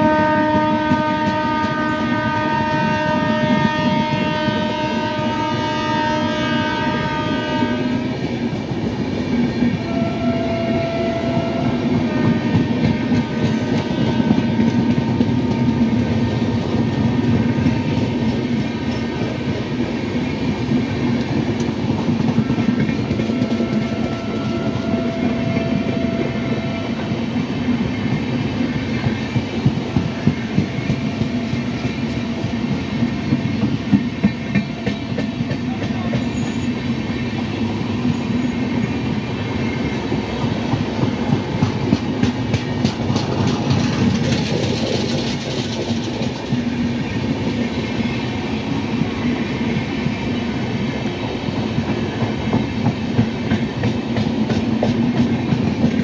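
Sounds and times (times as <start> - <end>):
train wheels clickety-clack: 0.0 - 56.0
train wheels rumbling: 0.0 - 56.0.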